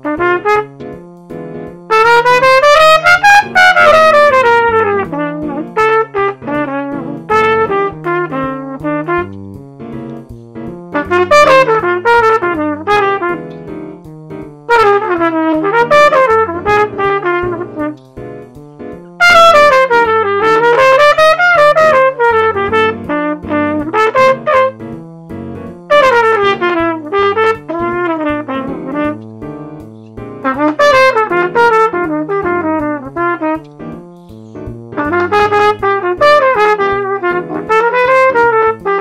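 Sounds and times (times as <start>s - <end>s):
trumpet improvising: 0.0s - 0.8s, 1.9s - 9.4s, 10.9s - 13.5s, 14.7s - 18.0s, 19.2s - 24.9s, 25.8s - 29.2s, 30.4s - 34.0s, 34.9s - 39.0s
synthesized jazz accompaniment: 0.0s - 39.0s
walking bass: 0.0s - 39.0s.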